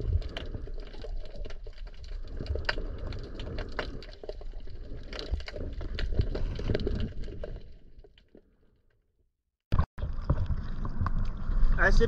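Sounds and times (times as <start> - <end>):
underwater rumble of moving water: 0.0 - 8.6, 10.0 - 12.0
sharp underwater clicks and crackles: 0.0 - 9.0, 9.7 - 11.8.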